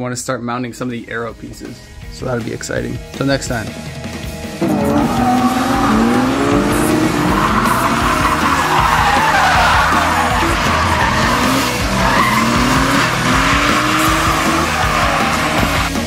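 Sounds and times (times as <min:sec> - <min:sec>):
car engine revving: 0:04.2 - 0:16.0
tyre squeal: 0:04.7 - 0:16.0.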